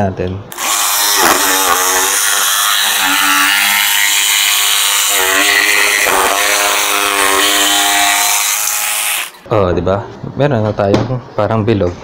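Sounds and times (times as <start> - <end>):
jigsaw cutting plywood: 0.5 - 9.4.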